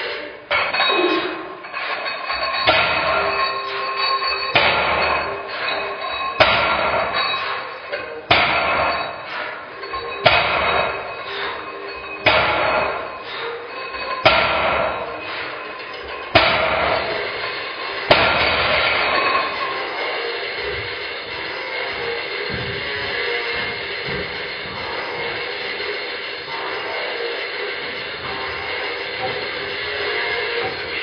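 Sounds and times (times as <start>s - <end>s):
barbell plates thudding on floor: 2.0s - 3.5s, 4.5s - 5.8s, 6.4s - 7.4s, 8.3s - 9.2s, 9.9s - 11.6s, 12.2s - 13.1s, 13.9s - 26.1s.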